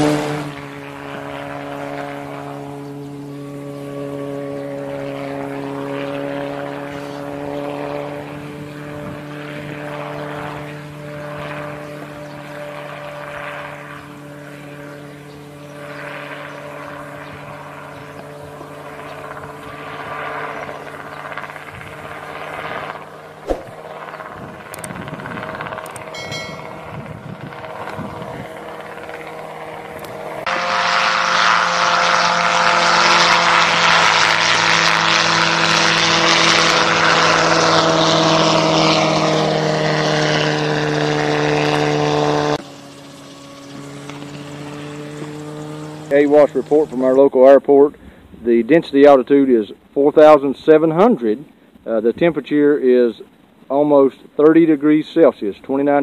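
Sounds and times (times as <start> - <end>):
helicopter engine and rotor: 0.2 - 48.4
sharp click: 23.5 - 23.7.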